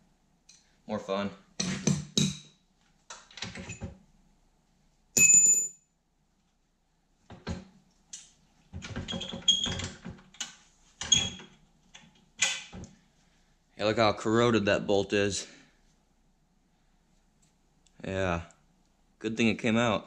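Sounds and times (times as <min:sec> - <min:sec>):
ringing metallic clink: 0:05.2 - 0:05.8.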